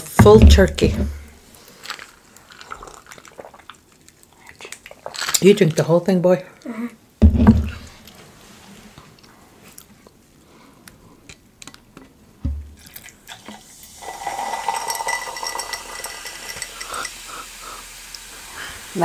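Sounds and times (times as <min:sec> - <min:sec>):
dull thump: 0:00.2 - 0:01.3, 0:07.2 - 0:07.9, 0:12.4 - 0:12.8
soda fizzing: 0:12.7 - 0:19.0
soda pouring into glass: 0:12.8 - 0:17.4.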